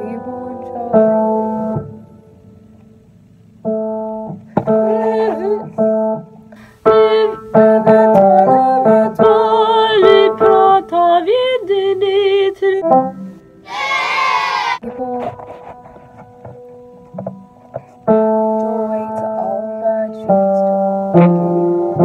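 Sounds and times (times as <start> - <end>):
woman singing: 0.0 - 1.8, 4.8 - 5.8, 6.8 - 13.0, 14.8 - 15.7, 18.2 - 20.8
instrumental accompaniment chords: 14.8 - 22.0.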